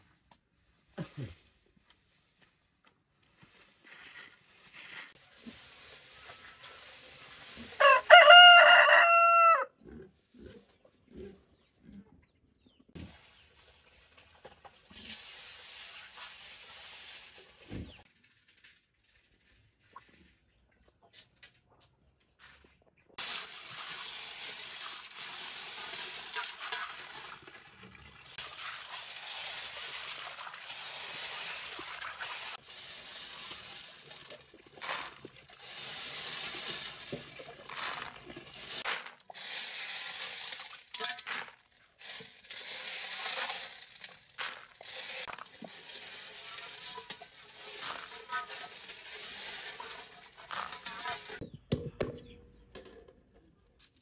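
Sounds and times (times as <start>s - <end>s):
tap water pouring into metal basin: 23.2s - 38.9s
snail shells rattling and clicking: 28.2s - 51.4s.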